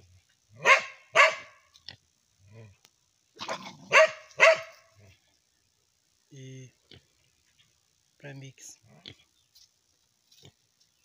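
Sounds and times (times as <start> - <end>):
dog barking: 0.6 - 1.6, 3.4 - 4.8.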